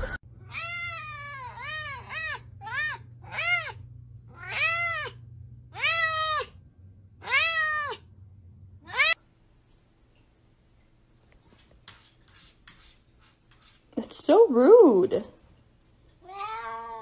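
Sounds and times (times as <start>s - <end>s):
cat meowing: 0.4s - 6.6s, 7.2s - 8.1s, 8.8s - 9.2s, 16.2s - 17.0s.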